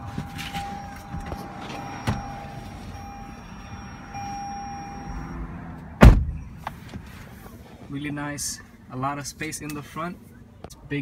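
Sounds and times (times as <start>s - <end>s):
high electronic warning chime: 0.0s - 5.6s.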